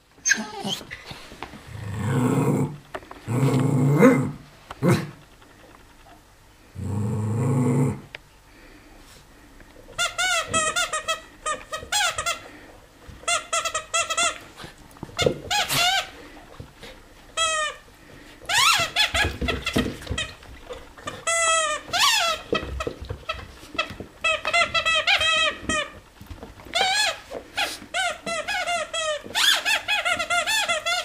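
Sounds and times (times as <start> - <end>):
squeaky toy squeaking: 27.9 - 31.0.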